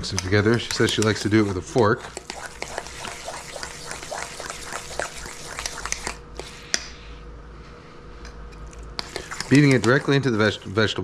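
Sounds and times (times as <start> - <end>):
fork clicking on metal bowl: 0.1 - 2.8
wet squelching: 0.5 - 6.5, 8.6 - 10.2.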